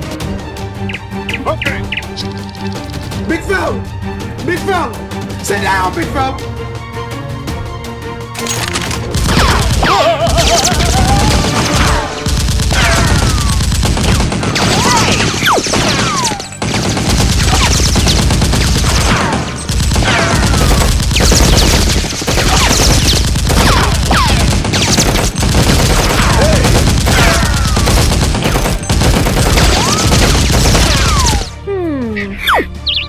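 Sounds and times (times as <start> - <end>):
rapid automatic gunfire: 9.1 - 31.5.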